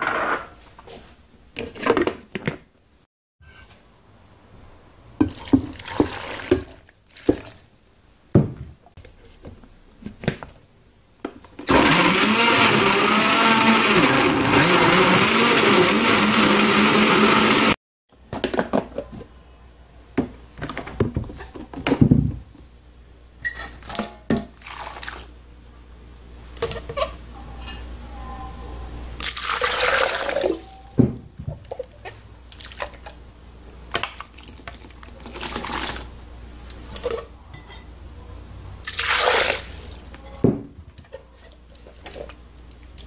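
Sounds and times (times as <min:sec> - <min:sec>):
blender running: 0:11.7 - 0:17.8.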